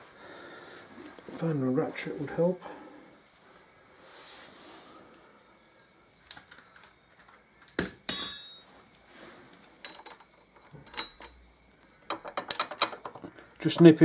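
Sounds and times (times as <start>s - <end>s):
metal clank and ringing clatter: 8.1s - 8.7s
steel hand tools clinking: 8.1s - 8.7s.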